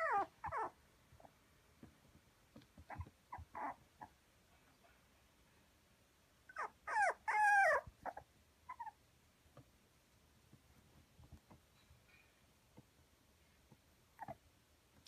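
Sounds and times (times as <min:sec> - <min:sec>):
puppy whimpering: 0:00.0 - 0:00.8, 0:02.9 - 0:04.2, 0:06.5 - 0:09.0, 0:14.2 - 0:14.4
soft taps: 0:01.8 - 0:03.2.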